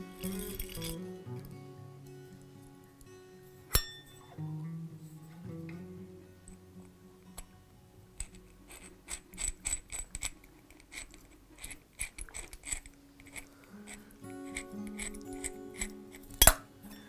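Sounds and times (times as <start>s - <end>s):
small metal clicks: 0.0s - 1.5s, 8.2s - 17.0s.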